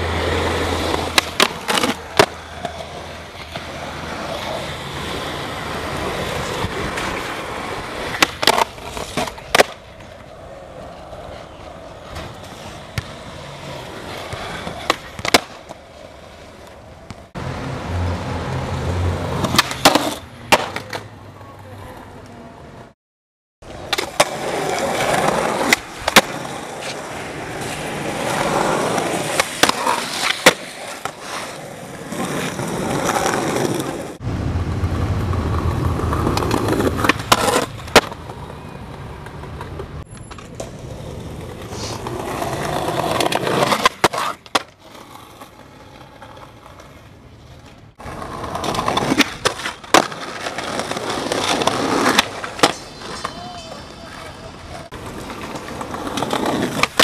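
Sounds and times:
skateboard wheels rolling on concrete: 0.0s - 23.0s, 23.6s - 57.0s
skateboard tail popping and landing: 0.6s - 4.7s, 5.9s - 10.3s, 12.1s - 15.9s, 19.3s - 21.1s, 23.7s - 34.2s, 34.9s - 38.6s, 47.6s - 53.4s, 55.0s - 57.0s.

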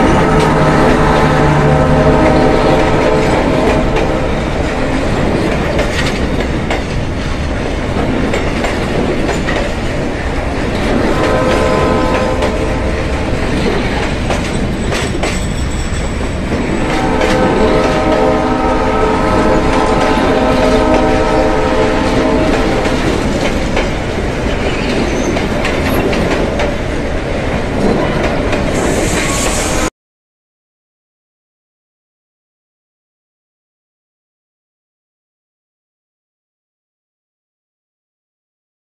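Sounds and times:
steam whistle blasts: 11.0s - 13.2s, 16.7s - 22.9s
steam hissing from locomotive: 28.7s - 29.9s.

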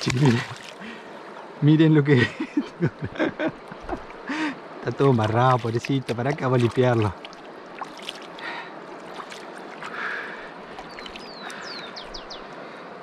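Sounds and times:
shallow water sloshing and splashing: 0.0s - 1.6s, 3.7s - 12.3s
river rushing: 3.7s - 13.0s.

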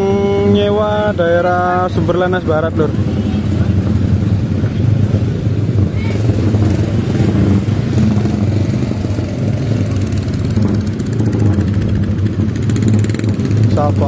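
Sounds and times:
motorcycle engines at low speed: 0.0s - 14.0s
truck engines at low speed: 0.0s - 14.0s.

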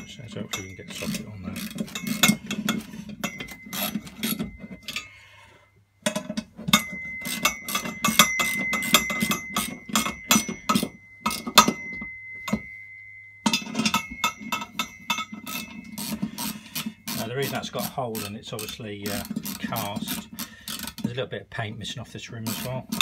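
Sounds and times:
ratchet wrench clicking: 14.8s - 21.0s.

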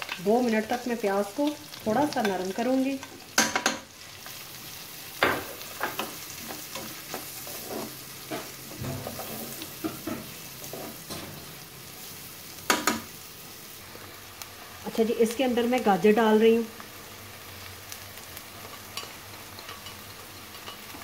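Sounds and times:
onions sizzling in a frying pan: 0.0s - 21.0s
spoon scraping a pan: 5.2s - 11.3s, 18.8s - 21.0s.

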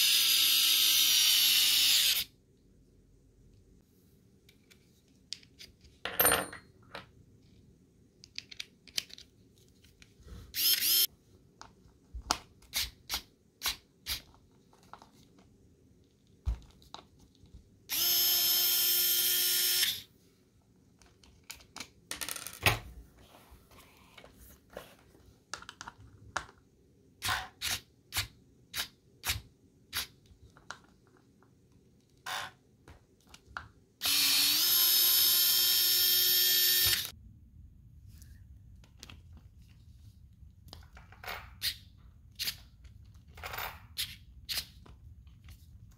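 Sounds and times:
electric screwdriver running: 0.0s - 2.3s, 10.6s - 11.1s, 17.9s - 20.0s, 34.0s - 37.1s.

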